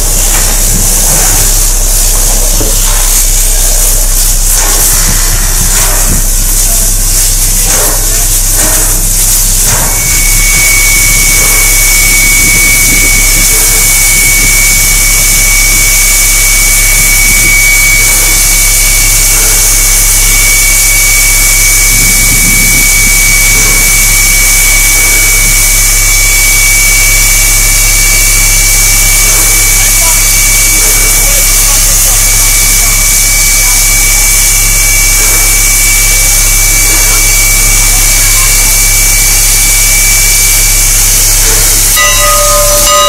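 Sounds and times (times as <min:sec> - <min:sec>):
locomotive exhaust chuffs: 0:00.0 - 0:43.0
steam locomotive hiss: 0:00.0 - 0:43.0
thin high whine: 0:00.0 - 0:43.0.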